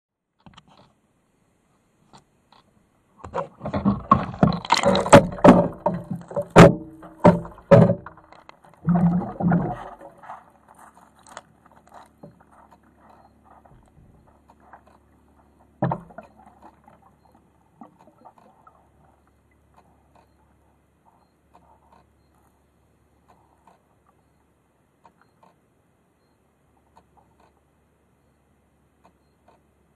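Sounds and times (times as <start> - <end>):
faint steady hum: 0.2 - 29.9
knocks: 3.2 - 10.0, 15.8 - 16.4
splashing in water: 3.3 - 10.7.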